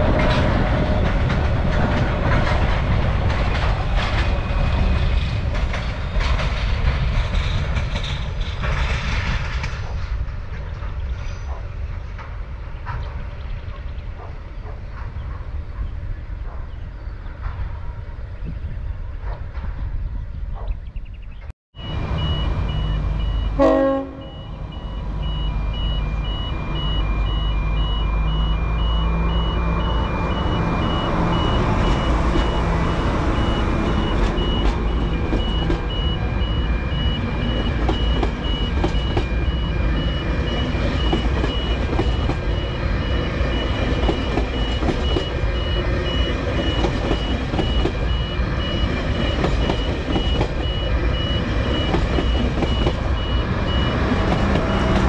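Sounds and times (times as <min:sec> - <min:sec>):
rail vehicle engine running: 0:00.0 - 0:55.0
pulsing electronic warning beep: 0:21.8 - 0:55.0.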